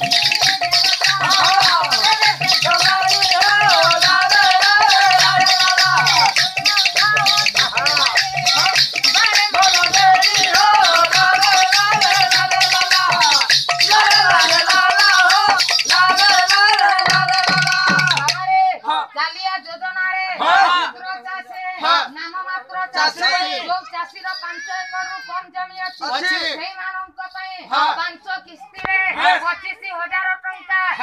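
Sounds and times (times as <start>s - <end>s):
shaker rattle: 0.0s - 18.5s.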